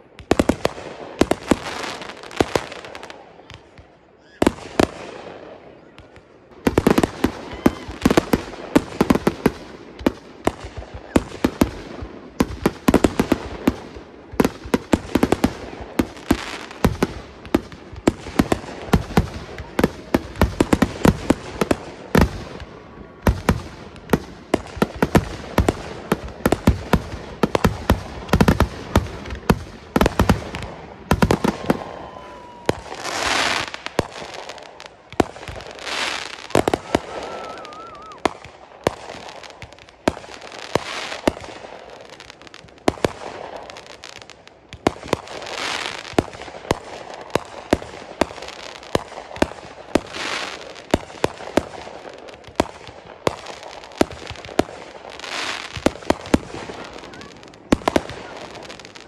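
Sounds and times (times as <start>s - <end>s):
fireworks bangs and crackles: 0.0s - 59.0s
faint thin whistle: 37.3s - 38.2s.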